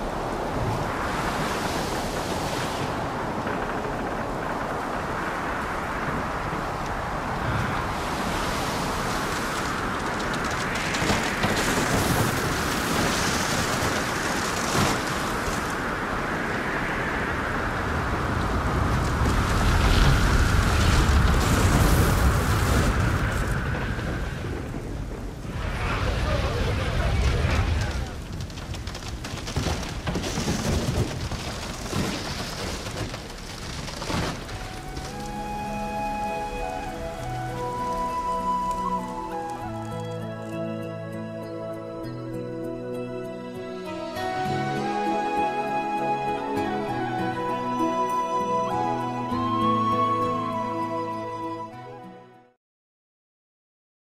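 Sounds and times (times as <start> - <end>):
rough sea surges: 0.0 - 40.8, 43.5 - 51.4
crackling: 0.0 - 41.2
rain: 0.0 - 52.0
wind: 0.0 - 52.6
music with long held notes: 35.1 - 52.4.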